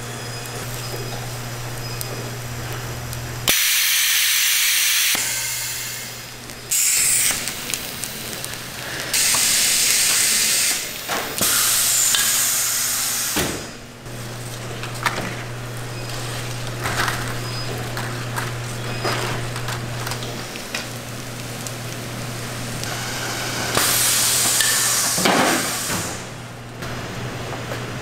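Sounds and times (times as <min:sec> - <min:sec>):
low machine hum: 0:00.0 - 0:28.0
machinery hissing steam bursts: 0:03.5 - 0:13.9, 0:22.3 - 0:26.5.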